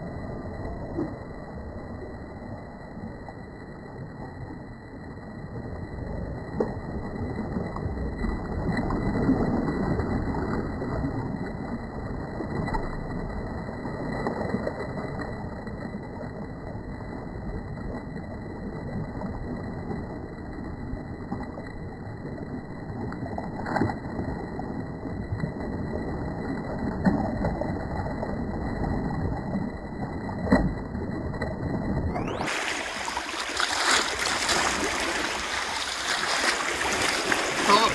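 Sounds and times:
sea water sloshing: 32.2s - 37.9s.

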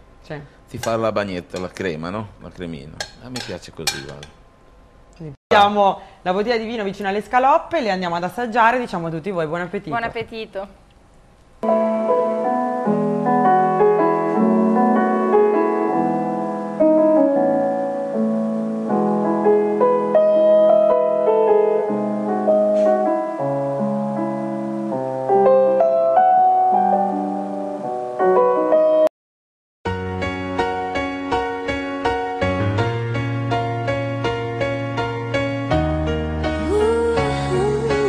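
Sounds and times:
instrumental background music: 11.6s - 29.1s, 29.9s - 38.0s.

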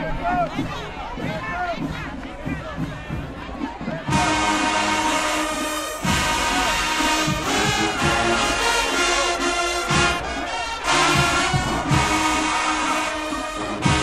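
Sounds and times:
drum hits: 0.6s - 8.9s, 9.8s - 14.0s
brass horns sustained chords: 4.1s - 14.0s.

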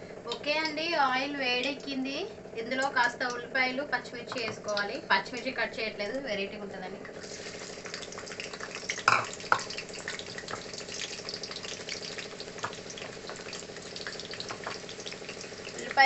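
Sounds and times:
onions sizzling in hot oil: 7.0s - 16.0s.

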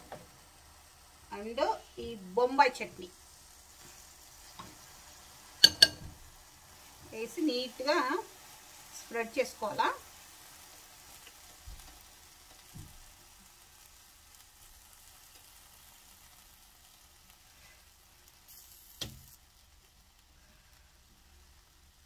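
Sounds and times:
faint sizzling on a griddle: 0.0s - 22.0s.

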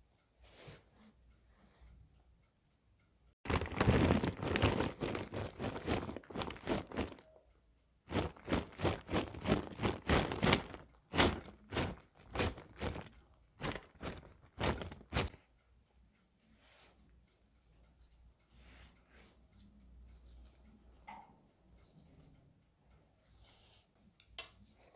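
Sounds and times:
shredded cheese rustling: 3.5s - 7.2s, 8.1s - 15.4s.

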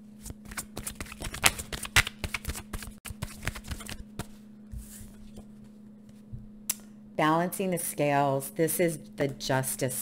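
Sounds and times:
cards being shuffled: 0.2s - 5.5s.

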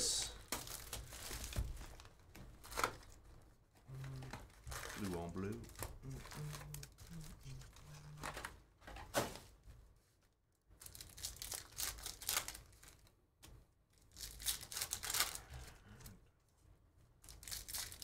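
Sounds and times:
foil wrappers crinkling: 0.4s - 3.3s, 4.2s - 8.5s, 10.8s - 13.1s, 14.0s - 15.6s, 17.2s - 18.0s
foil pack tearing open: 10.8s - 13.0s, 14.1s - 15.5s, 17.3s - 18.0s.

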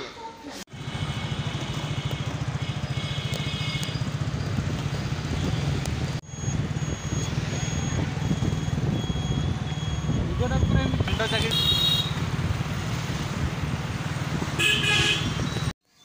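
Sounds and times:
road noise: 0.5s - 15.8s
motorcycle engine running: 0.7s - 15.5s
high repeating beep: 6.3s - 11.1s.

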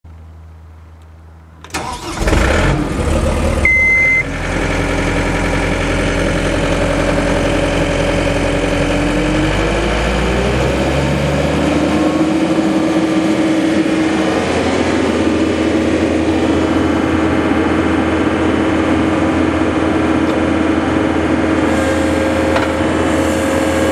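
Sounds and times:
diesel engine starting and running: 0.1s - 23.9s
short high beep: 3.6s - 4.3s.

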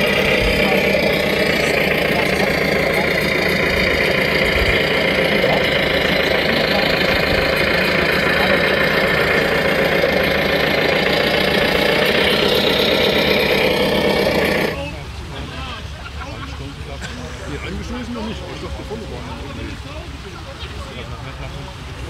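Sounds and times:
rc truck motor drone: 0.0s - 15.1s.

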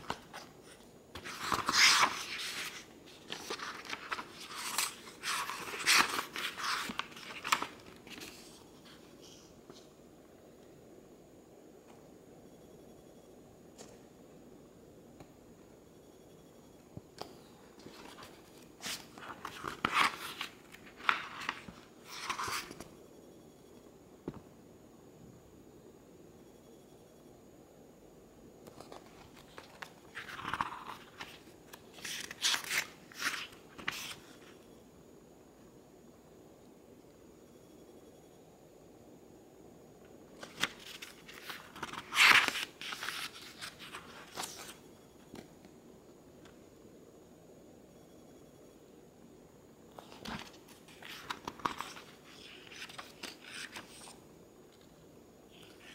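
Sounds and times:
book pages rustling: 0.0s - 9.9s, 17.8s - 22.9s, 28.7s - 34.4s, 40.4s - 44.8s, 49.9s - 54.2s.

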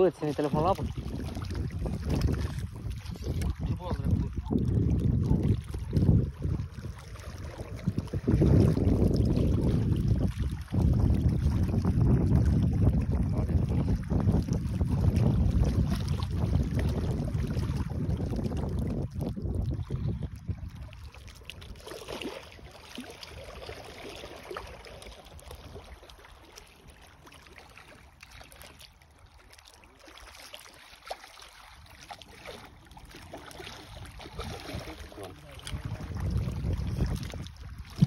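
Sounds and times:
wind rumbling on microphone: 0.0s - 24.0s, 32.6s - 38.0s
water lapping: 0.0s - 38.0s
fish splashing at surface: 20.9s - 29.0s.

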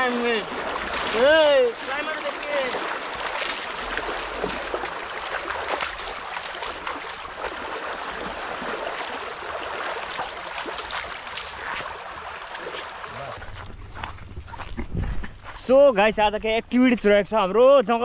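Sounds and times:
stream rushing over stones: 0.0s - 13.6s
feet splashing through water: 0.0s - 15.6s.

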